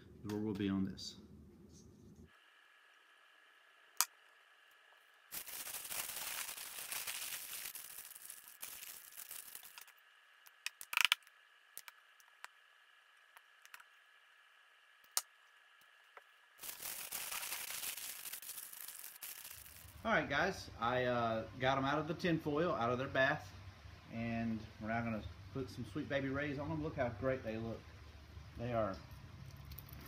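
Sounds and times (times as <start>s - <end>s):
aluminium foil crinkling: 5.3s - 11.2s, 16.6s - 20.0s.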